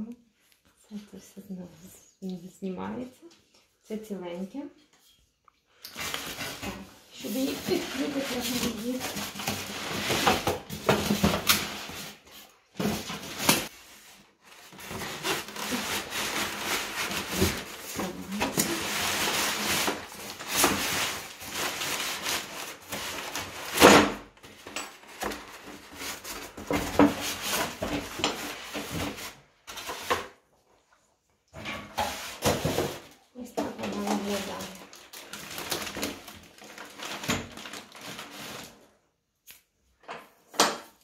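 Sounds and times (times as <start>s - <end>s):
foam packaging rubbing and scraping: 6.0s - 23.8s, 25.2s - 30.2s, 33.9s - 38.9s.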